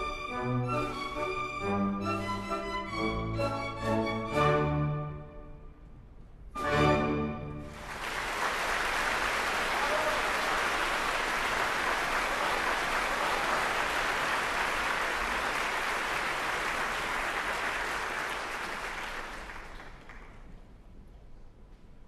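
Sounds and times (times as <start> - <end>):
audience applauding: 7.6 - 20.6.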